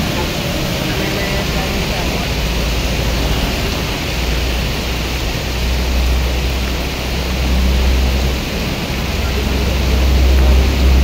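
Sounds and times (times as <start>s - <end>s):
car tyres swishing through water: 0.0s - 11.0s
heavy rain hissing: 0.0s - 11.0s.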